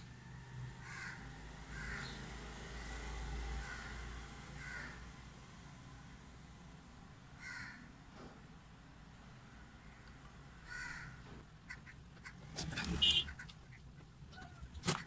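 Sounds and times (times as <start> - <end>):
crow cawing: 0.8 - 2.2, 3.6 - 4.0, 4.6 - 5.0, 7.4 - 7.9, 10.6 - 12.4.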